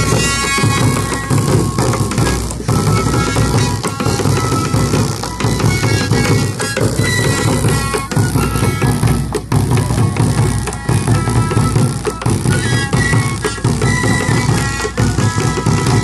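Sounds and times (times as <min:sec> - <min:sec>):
end-blown pipes playing: 0:00.0 - 0:16.0
wooden drums beating: 0:00.0 - 0:16.0.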